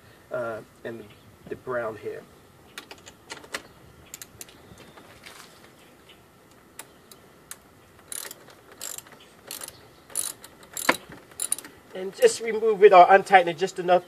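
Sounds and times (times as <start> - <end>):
socket ratchet clicking: 7.5 - 11.8.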